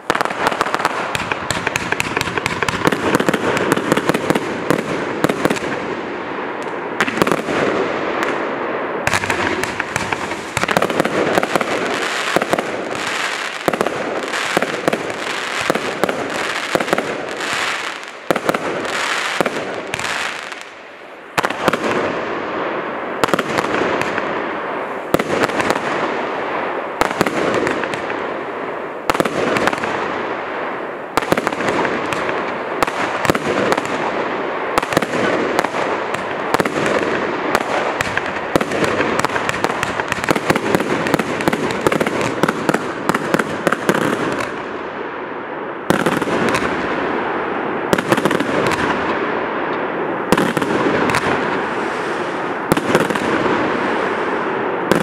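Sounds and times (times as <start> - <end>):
firework launch pops and bursts: 0.0 - 5.8, 6.6 - 8.4, 9.0 - 20.6, 34.8 - 44.6, 45.9 - 46.8, 47.9 - 49.2, 50.3 - 51.6
heavy firework bangs: 0.0 - 20.7, 21.4 - 28.4, 29.0 - 30.4, 31.1 - 44.9, 45.8 - 49.5, 50.2 - 55.0.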